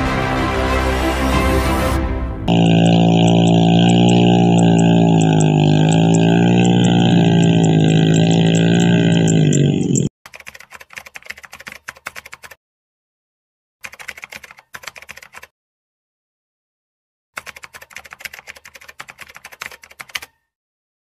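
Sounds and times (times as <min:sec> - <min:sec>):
keyboard typing clicks: 0:08.8 - 0:12.6, 0:13.8 - 0:15.5, 0:17.4 - 0:20.4.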